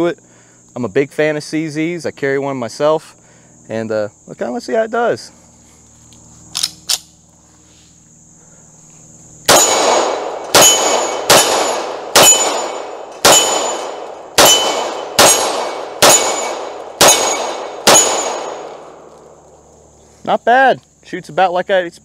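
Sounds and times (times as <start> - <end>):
pistol shots with echo: 9.5 - 19.4.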